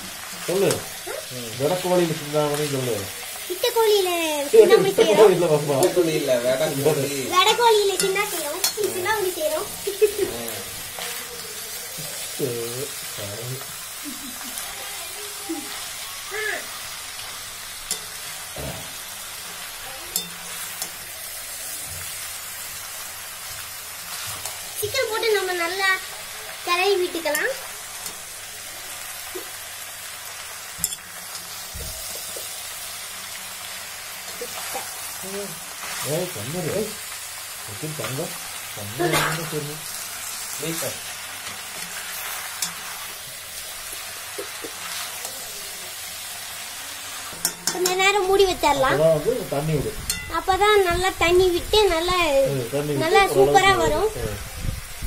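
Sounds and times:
spatula stirring in a pan: 0:00.0 - 0:50.6
food sizzling in a pan: 0:00.0 - 0:55.0
spatula tapping a pan: 0:20.1 - 0:21.1, 0:47.3 - 0:48.1.

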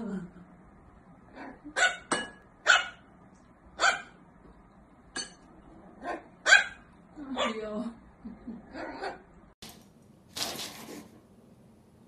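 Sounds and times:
puppy yapping: 0:03.8 - 0:04.1, 0:06.0 - 0:06.8.

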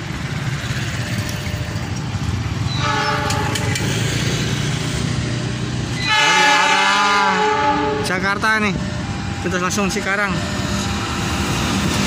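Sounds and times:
locomotive horn blast: 0:02.7 - 0:04.1, 0:05.9 - 0:09.8.

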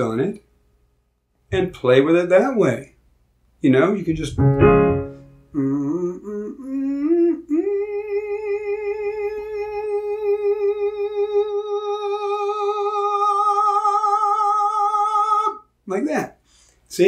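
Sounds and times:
man singing high note with vibrato: 0:05.4 - 0:15.6.

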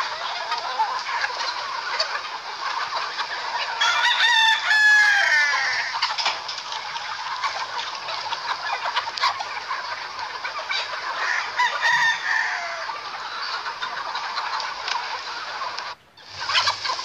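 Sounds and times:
chickens clucking: 0:00.0 - 0:17.0
rooster crowing: 0:03.8 - 0:06.0, 0:11.2 - 0:12.9.

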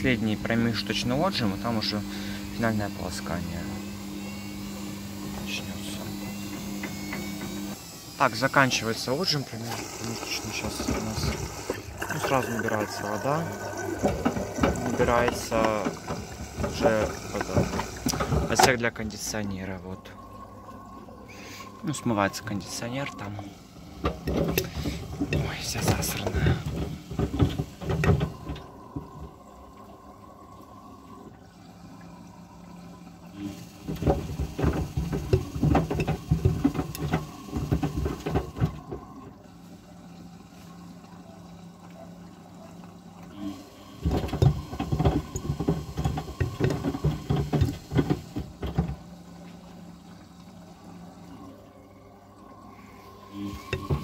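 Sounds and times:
water running in: 0:00.0 - 0:54.0
washing machine drum turning: 0:04.6 - 0:29.7, 0:33.6 - 0:39.4, 0:43.9 - 0:49.5, 0:53.2 - 0:54.0
water sloshing: 0:08.4 - 0:43.2, 0:43.8 - 0:54.0.

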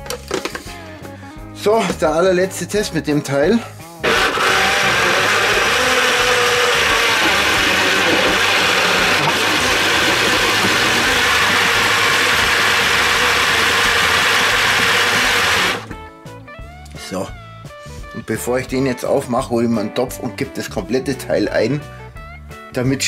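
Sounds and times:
blender running at full speed: 0:04.0 - 0:15.9.

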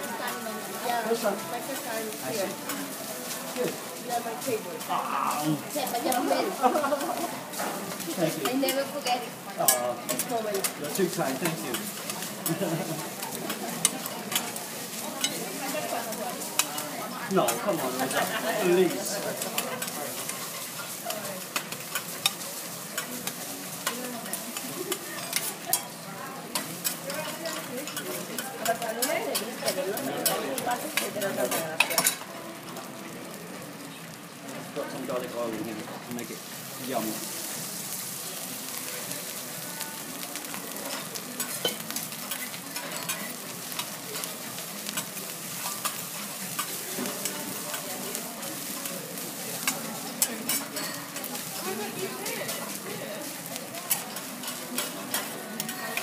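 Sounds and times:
rice sizzling on griddle: 0:00.0 - 0:56.0
metal spatula clicking on hotplate: 0:26.5 - 0:30.4.

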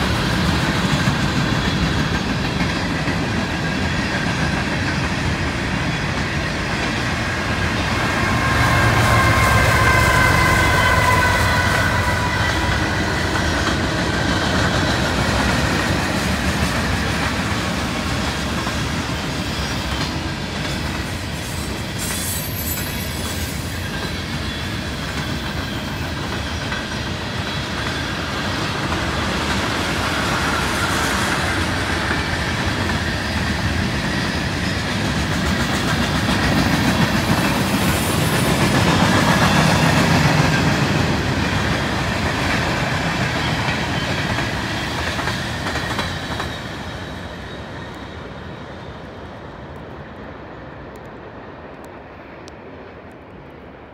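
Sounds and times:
diesel locomotive passing: 0:00.0 - 0:53.9
train wheels rolling on rails: 0:00.0 - 0:53.9.

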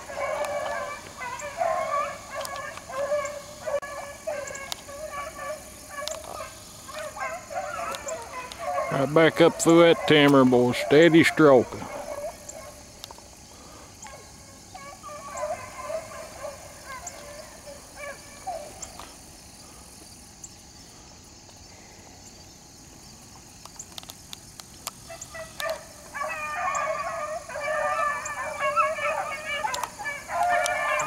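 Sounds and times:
hounds baying: 0:00.0 - 0:20.0, 0:25.0 - 0:31.0
sharp clicks: 0:29.7 - 0:30.7.

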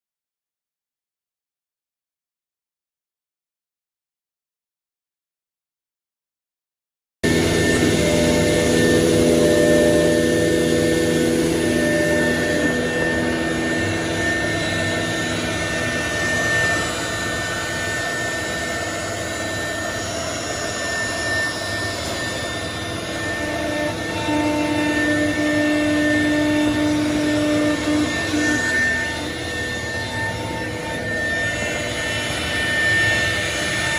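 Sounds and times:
high-pitched whining tones: 0:07.2 - 0:33.9
machine drone: 0:07.2 - 0:33.9.

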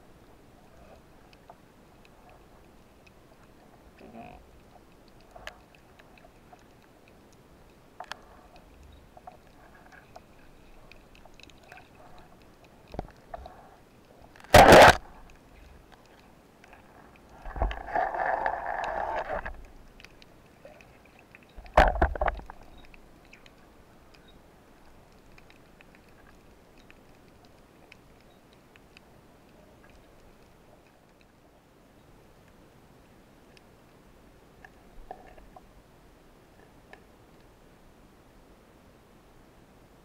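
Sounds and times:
faint ticks and clicks: 0:00.0 - 0:38.6
speargun firing underwater: 0:14.5 - 0:15.0.

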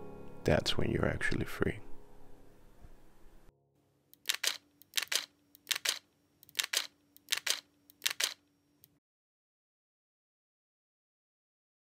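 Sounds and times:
crisp double clicks: 0:04.2 - 0:08.4.

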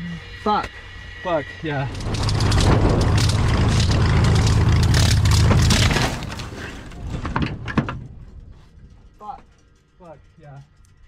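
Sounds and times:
plane engine at high power: 0:00.0 - 0:06.5
crunching through dirt and brush: 0:02.0 - 0:06.9.

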